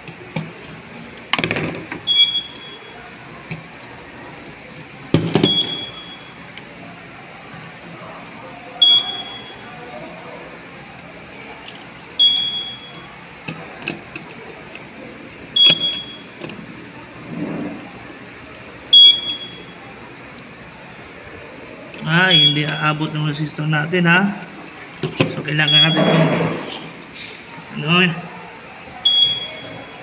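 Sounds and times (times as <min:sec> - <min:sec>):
short high alarm beep: 0:02.1 - 0:03.0, 0:05.4 - 0:06.4, 0:08.8 - 0:09.6, 0:12.2 - 0:13.0, 0:15.6 - 0:16.2, 0:18.9 - 0:19.8, 0:22.3 - 0:22.9, 0:25.7 - 0:26.2, 0:29.0 - 0:30.0.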